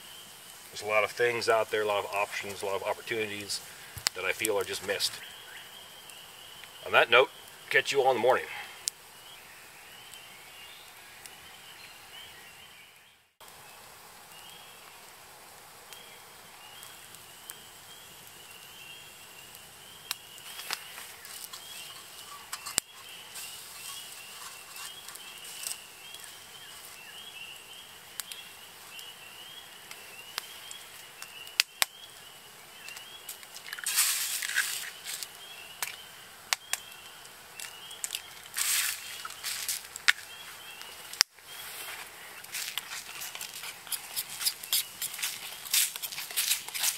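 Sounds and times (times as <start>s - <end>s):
insects chirping: 16.0s - 46.9s
metal clicks on grill grate: 20.1s - 25.8s.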